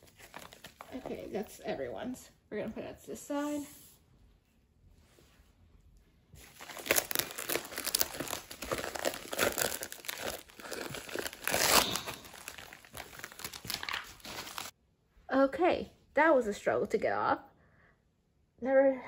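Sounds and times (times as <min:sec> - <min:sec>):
bubble wrap crinkling: 0:00.0 - 0:01.8, 0:06.4 - 0:14.8.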